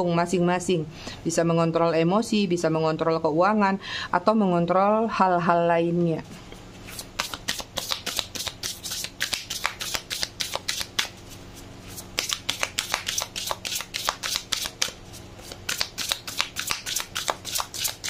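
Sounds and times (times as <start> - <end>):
cards shuffling and riffling: 6.9 - 18.0.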